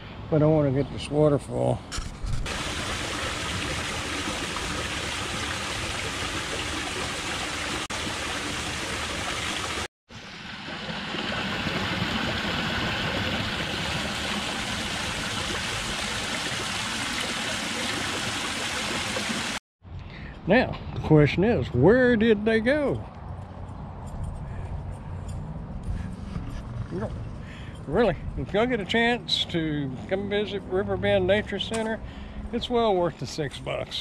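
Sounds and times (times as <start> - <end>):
waterfall rushing: 2.5 - 9.9.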